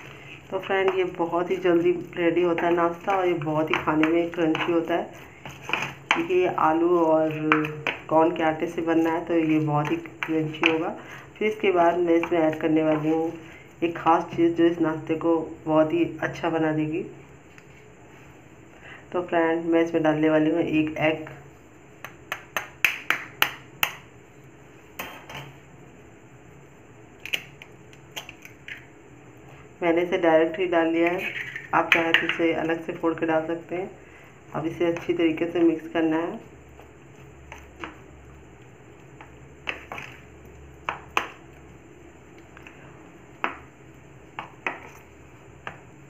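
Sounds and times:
spoon stirring wet mixture: 0:00.0 - 0:14.5, 0:34.5 - 0:41.7
spoon knocking plastic container: 0:31.3 - 0:32.4.

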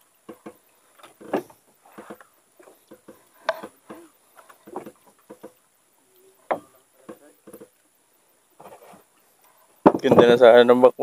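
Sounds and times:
irregular knocks and taps: 0:00.2 - 0:00.6, 0:01.2 - 0:05.6, 0:06.5 - 0:07.8.

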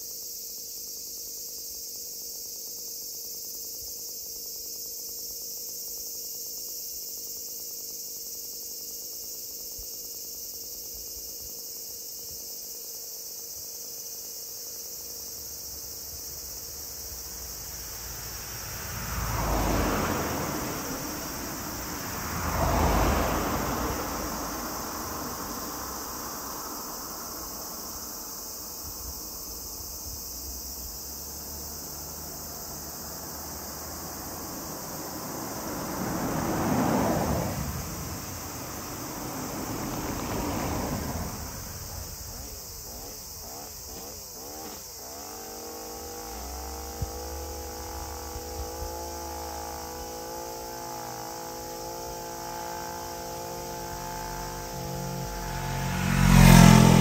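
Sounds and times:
insects chorus: 0:00.0 - 0:57.0
vehicles passing: 0:15.0 - 0:57.0.

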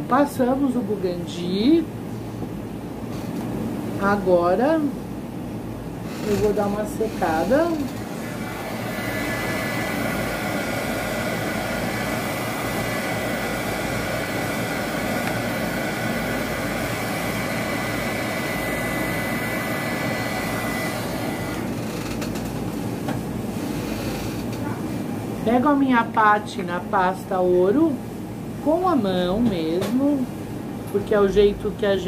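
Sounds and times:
heat gun blowing air: 0:07.3 - 0:21.8.

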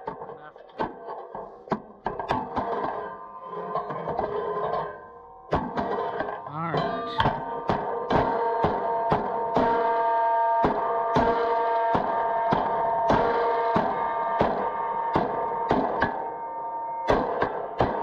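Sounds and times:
hammer striking steel: 0:10.6 - 0:16.4.

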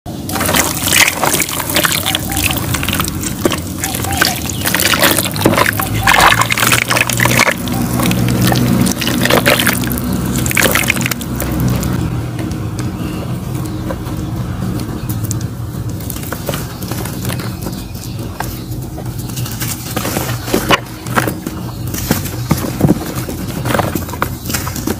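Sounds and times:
mud dripping: 0:00.1 - 0:12.9
mud slurry pouring and splattering: 0:00.2 - 0:12.0
wet clay crunching in hands: 0:00.2 - 0:12.0.

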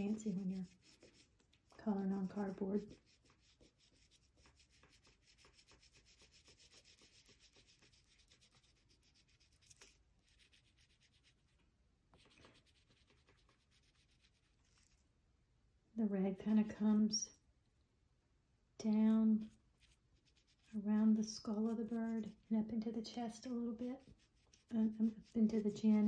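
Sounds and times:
oil pastel scratching on cardboard: 0:00.0 - 0:11.6, 0:12.2 - 0:15.0, 0:19.5 - 0:22.5, 0:23.1 - 0:26.0.

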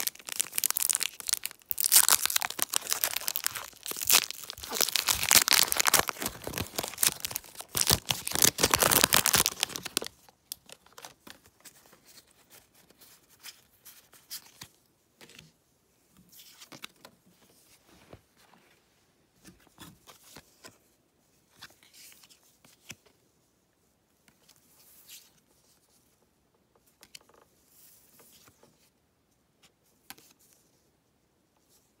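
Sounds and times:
foil wrapper crinkling and tearing: 0:00.0 - 0:11.2.

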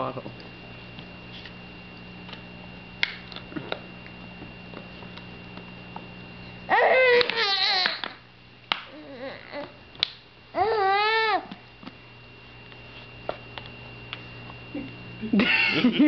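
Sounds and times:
baby growling: 0:08.9 - 0:09.8, 0:10.6 - 0:11.5.

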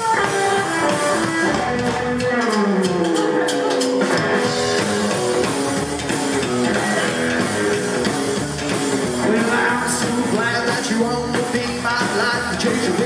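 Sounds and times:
drum kit: 0:00.0 - 0:13.0
electric guitar picking: 0:00.0 - 0:13.0
upright double bass: 0:04.4 - 0:13.0.

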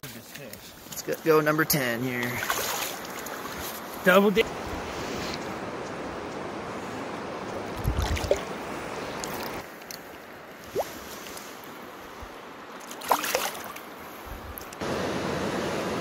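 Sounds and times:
river current washing: 0:00.2 - 0:16.0
fish tail splashing water: 0:02.2 - 0:03.6, 0:07.8 - 0:10.1, 0:12.7 - 0:13.9.

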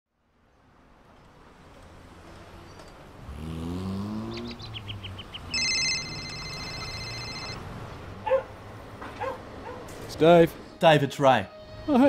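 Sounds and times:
car engine speeding up: 0:03.2 - 0:07.0
bird chirping: 0:04.1 - 0:07.2
mobile phone ringing: 0:05.5 - 0:07.7.

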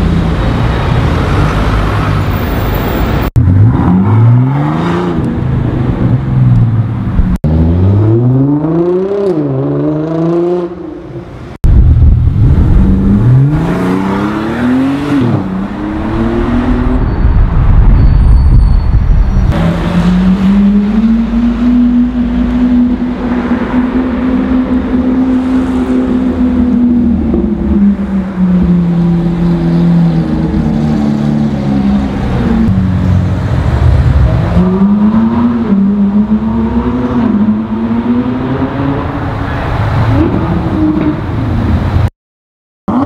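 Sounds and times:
low traffic rumble: 0:00.0 - 0:42.1
car engine revving: 0:11.7 - 0:17.0.

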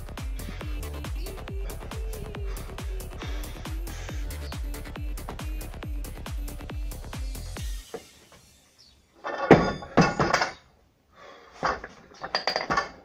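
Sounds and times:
clattering knocks of barbell: 0:09.2 - 0:10.6
barbell dropped on wooden platform: 0:09.2 - 0:10.7, 0:11.6 - 0:13.0.

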